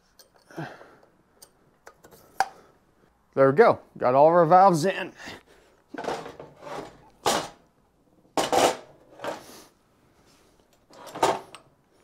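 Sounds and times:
metal scraping and knocking on bench: 6.0s - 7.6s, 8.4s - 9.4s.

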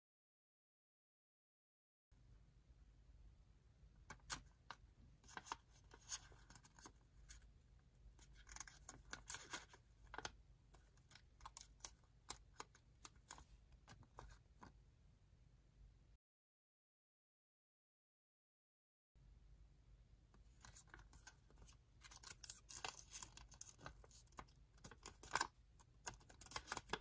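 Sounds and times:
paper rustling and crinkling: 5.2s - 7.4s, 8.2s - 10.3s, 20.5s - 27.0s.

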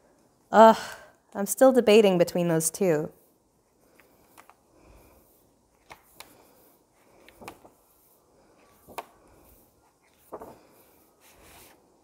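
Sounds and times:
soft paper rustles: 3.2s - 12.0s.

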